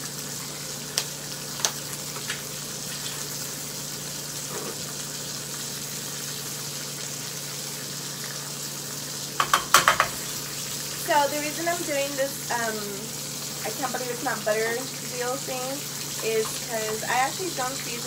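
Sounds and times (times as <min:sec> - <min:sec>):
bacon sizzling in a pan: 0:00.0 - 0:18.0
sharp clicks and knocks: 0:09.4 - 0:10.2.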